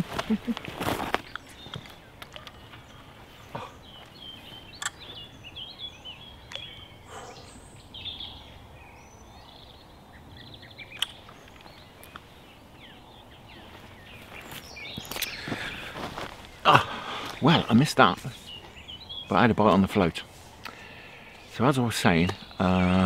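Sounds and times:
small birds chirping: 0.0s - 23.0s
sharp clicks: 4.8s - 5.0s, 10.9s - 12.3s.

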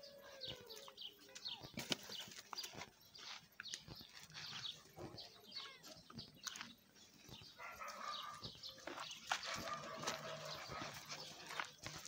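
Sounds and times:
small birds chirping: 0.0s - 12.0s
puppies scuffling on gravel: 0.4s - 12.0s
steady animal sound: 7.0s - 12.0s.

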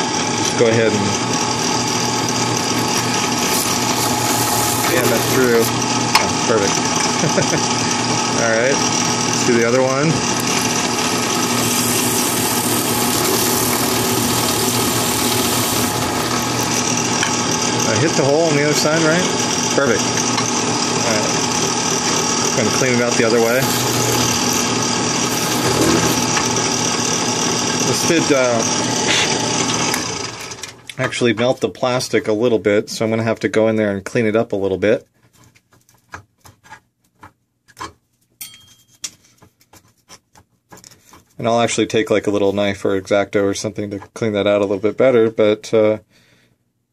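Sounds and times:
drill press humming: 0.0s - 30.8s
scratchy scrape: 2.8s - 5.7s, 10.5s - 16.2s, 22.6s - 26.4s.

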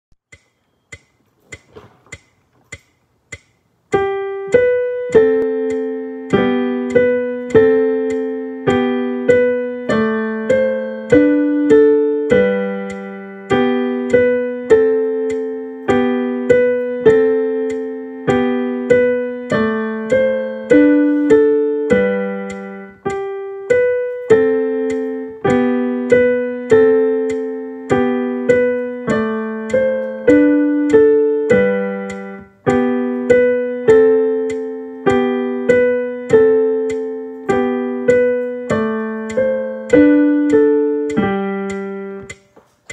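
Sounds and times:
digital piano playing: 3.8s - 42.9s.

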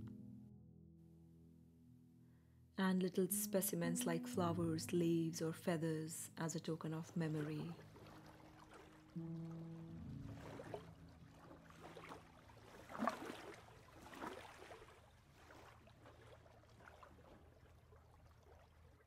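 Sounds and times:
small waves lapping: 5.6s - 19.0s.

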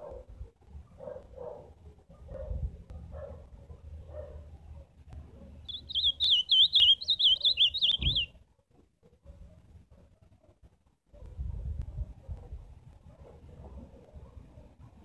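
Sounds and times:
bird singing whistled notes: 5.7s - 8.3s.

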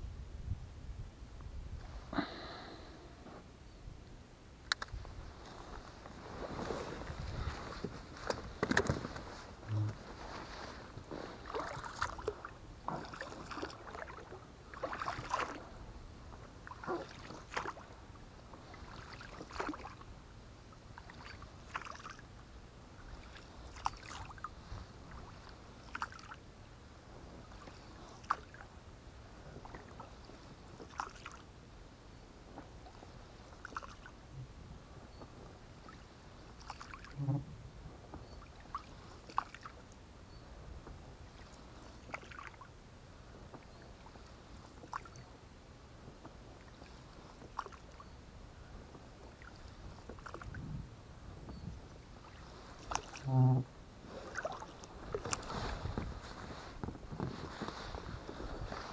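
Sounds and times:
oars splashing in water: 6.1s - 20.1s, 20.9s - 22.3s, 23.0s - 26.4s, 27.4s - 28.7s, 29.5s - 31.5s, 32.6s - 34.2s, 35.8s - 37.5s, 38.4s - 39.9s, 41.2s - 42.7s, 43.4s - 45.3s, 46.2s - 48.1s, 48.9s - 50.6s, 52.0s - 58.9s
small knocks of oars: 7.2s - 15.6s, 51.4s - 58.9s.

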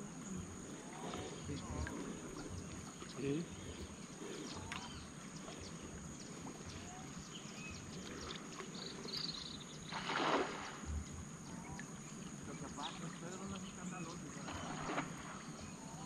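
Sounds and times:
splashing water: 0.0s - 9.2s, 9.8s - 16.0s
bird chirps: 1.4s - 10.0s.

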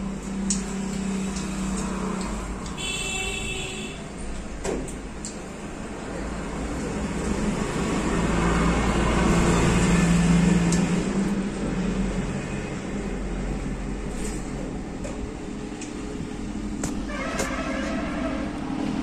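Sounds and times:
vehicle engine passing by: 6.0s - 14.6s.

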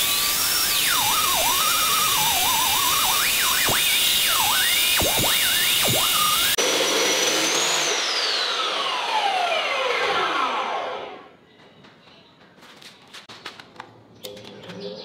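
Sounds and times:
cut-off saw whine spinning down: 0.0s - 11.3s.

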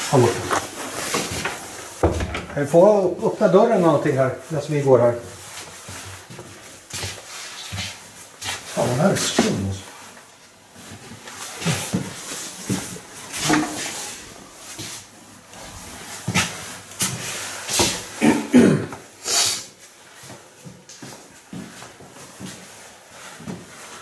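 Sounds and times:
rustling: 0.0s - 18.1s
footsteps in a house: 0.0s - 24.0s.

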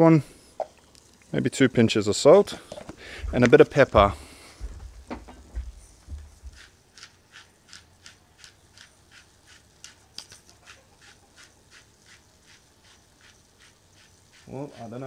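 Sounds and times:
pepper mill grinding: 6.3s - 15.0s.

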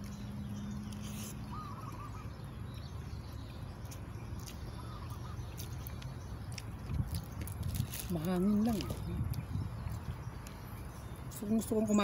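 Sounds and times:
bird warbling calls: 0.6s - 6.4s
wind on microphone: 6.8s - 11.1s.

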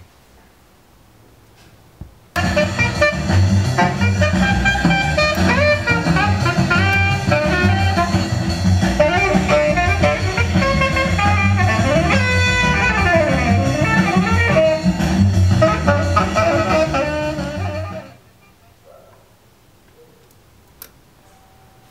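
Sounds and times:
jazz guitar music: 2.4s - 18.5s.

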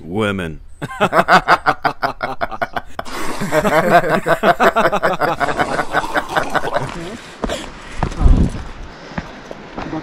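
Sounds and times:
people laughing: 0.8s - 7.6s.

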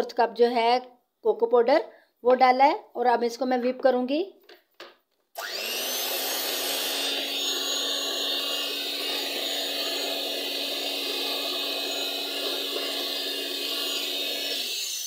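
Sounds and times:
electric hand mixer running: 5.4s - 15.0s.

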